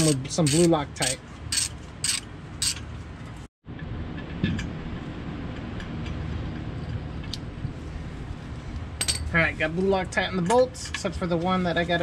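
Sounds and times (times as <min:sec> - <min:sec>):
ratchet wrench clicking: 0:00.0 - 0:02.8
steady low hum: 0:00.0 - 0:12.0.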